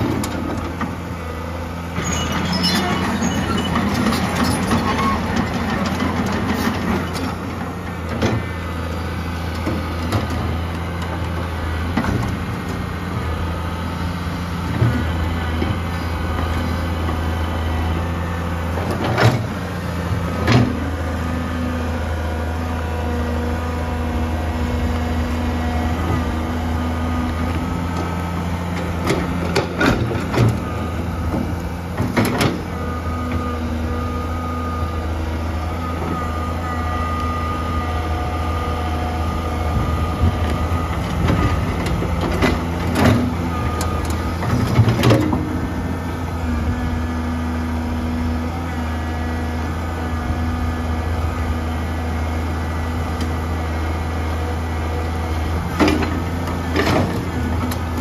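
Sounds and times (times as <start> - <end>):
excavator diesel engine running: 0.0 - 58.0
hydraulic whine: 1.9 - 10.6, 21.9 - 48.9.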